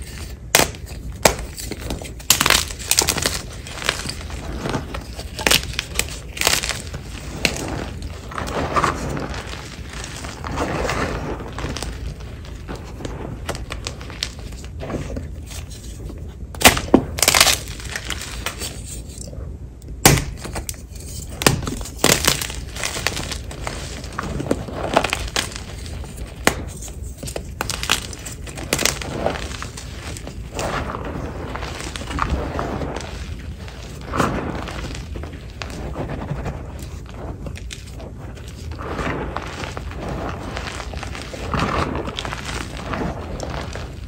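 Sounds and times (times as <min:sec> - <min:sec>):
chalk crunching and crumbling: 0:00.0 - 0:19.3, 0:20.1 - 0:44.0.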